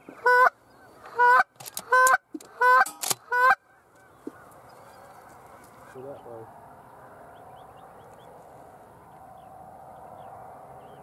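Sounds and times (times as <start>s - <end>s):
geese honking: 0.1s - 6.0s.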